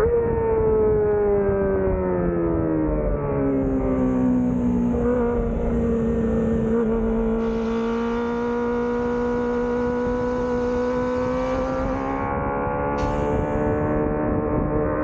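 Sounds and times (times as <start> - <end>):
motorcycle engine at high revs: 3.5 - 15.0.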